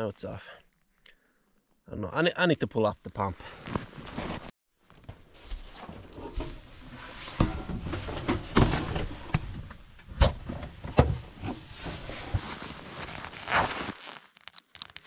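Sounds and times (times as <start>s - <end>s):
rustling: 10.6s - 15.0s.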